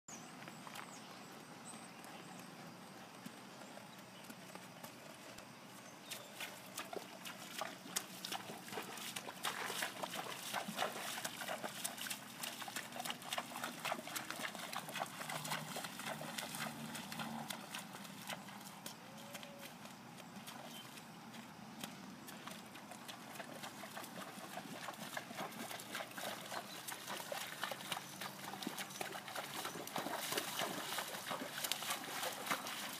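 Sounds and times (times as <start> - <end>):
horse hooves on pavement: 0.2 - 32.9.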